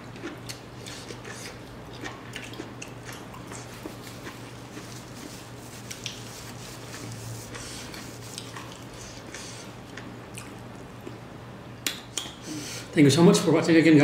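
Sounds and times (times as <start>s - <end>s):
steady low hum: 0.0s - 14.0s
paper tissue rustling: 4.8s - 8.4s.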